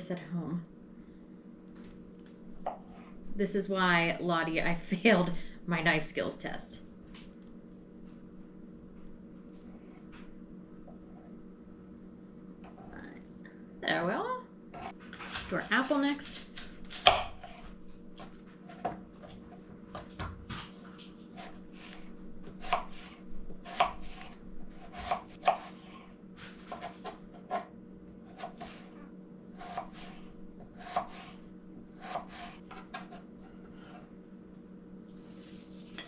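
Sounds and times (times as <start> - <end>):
steady low hum: 0.0 - 36.0
knife chopping apple on board: 16.4 - 17.6, 21.3 - 25.8, 26.7 - 27.7, 28.3 - 28.9, 29.6 - 31.4, 32.0 - 34.0.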